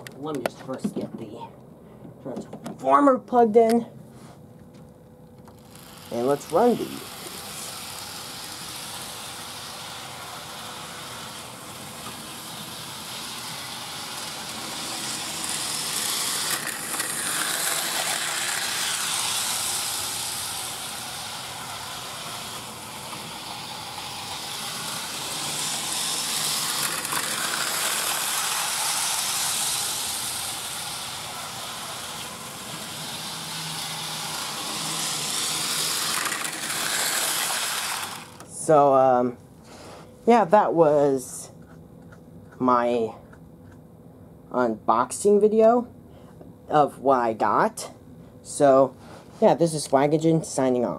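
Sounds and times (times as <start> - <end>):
model train motor whirr: 5.5 - 38.7.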